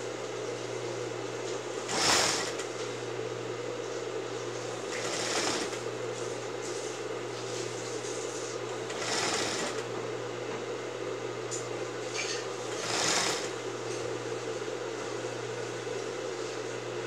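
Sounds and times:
sewing machine running: 0:01.8 - 0:02.8, 0:04.6 - 0:06.0, 0:08.7 - 0:10.0, 0:12.5 - 0:13.8.

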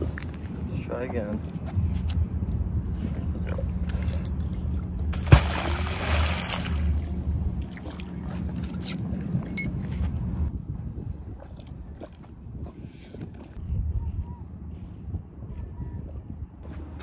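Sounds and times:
steady low hum: 0:00.0 - 0:17.0
magnet splashing into water: 0:05.1 - 0:07.0.

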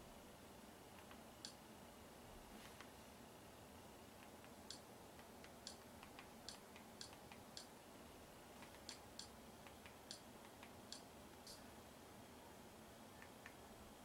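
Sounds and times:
remote control clicks: 0:04.2 - 0:07.7, 0:08.6 - 0:11.6.

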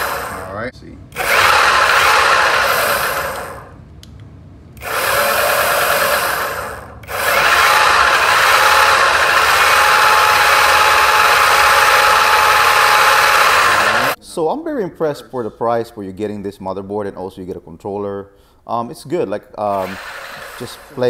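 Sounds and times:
electric motor whir: 0:00.0 - 0:00.6, 0:01.2 - 0:03.8, 0:04.8 - 0:14.2, 0:19.7 - 0:21.0.

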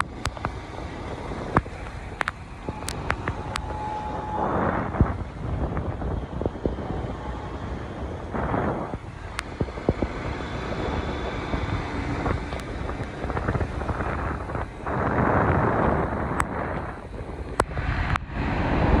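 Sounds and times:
sharp clicks: 0:00.0 - 0:05.2
motorcycle engine rumble: 0:00.0 - 0:19.0
wet road noise: 0:00.0 - 0:19.0
wind buffeting microphone: 0:00.0 - 0:19.0.

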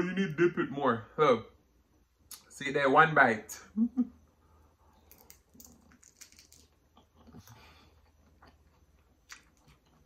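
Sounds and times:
crunching and chewing: 0:04.9 - 0:10.0.

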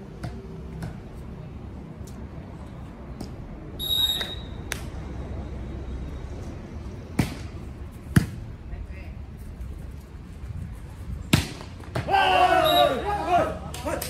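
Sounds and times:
referee's whistle blast: 0:03.8 - 0:04.6, 0:12.6 - 0:13.0.

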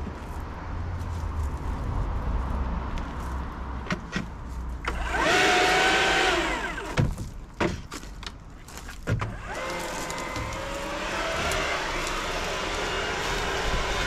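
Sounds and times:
leaf blower whine: 0:04.9 - 0:07.0, 0:09.3 - 0:14.0.

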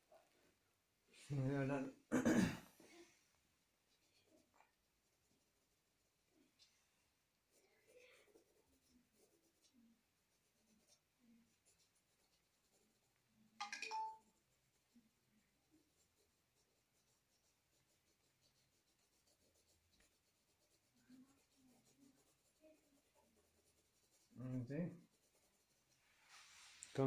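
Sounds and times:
pencil scratching on paper: 0:03.8 - 0:06.6, 0:07.3 - 0:13.4, 0:14.2 - 0:26.1.

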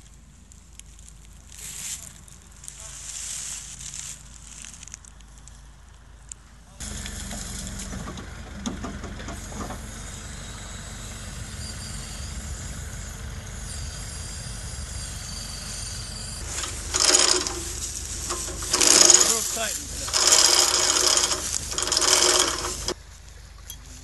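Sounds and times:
diesel engine running: 0:06.8 - 0:23.0.

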